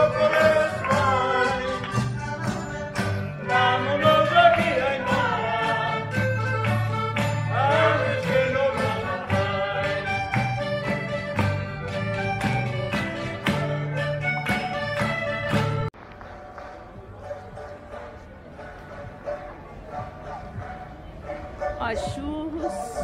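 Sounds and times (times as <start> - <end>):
people singing: 0.0 - 2.1, 3.4 - 6.3, 7.5 - 10.4
guitars playing: 0.0 - 15.9
percussion beat: 0.0 - 23.0.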